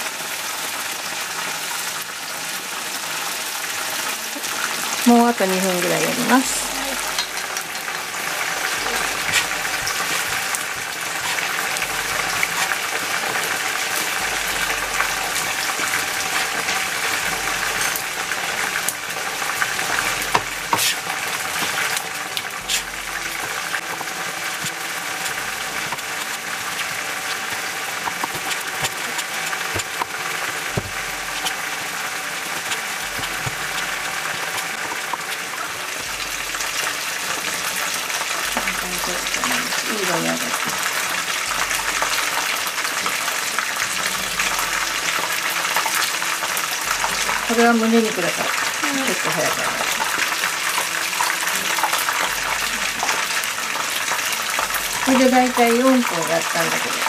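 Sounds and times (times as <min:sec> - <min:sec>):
chicken deep-frying in oil: 0:00.0 - 0:57.0
knife tapping cutting board: 0:19.8 - 0:21.0, 0:28.0 - 0:31.6.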